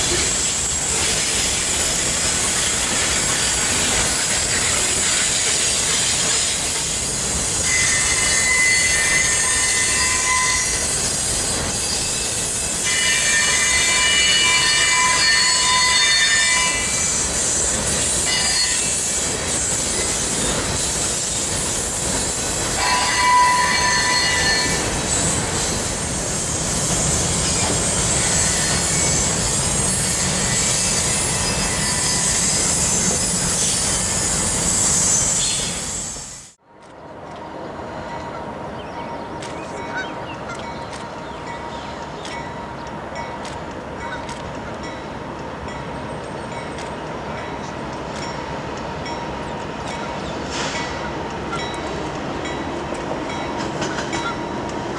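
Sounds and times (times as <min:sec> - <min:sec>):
wheel flanges squealing: 0:00.0 - 0:36.0
train wheels rumbling on rails: 0:00.0 - 0:54.9.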